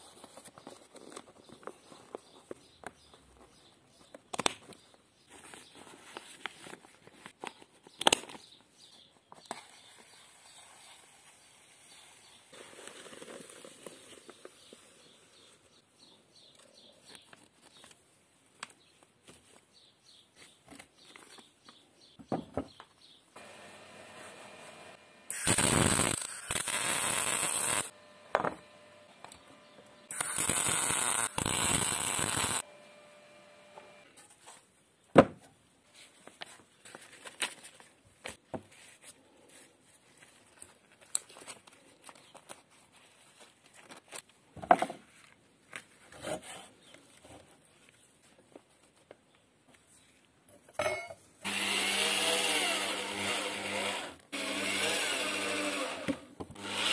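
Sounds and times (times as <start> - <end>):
welding arc crackling and hissing: 23.4 - 29.2, 30.1 - 32.7.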